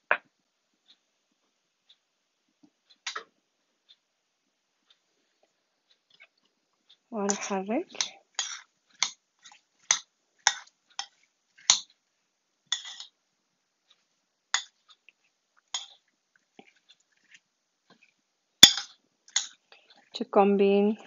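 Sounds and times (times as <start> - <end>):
metal spoon clinking on glass bowl: 12.7 - 13.1, 14.6 - 14.8, 15.7 - 16.0, 18.6 - 19.6.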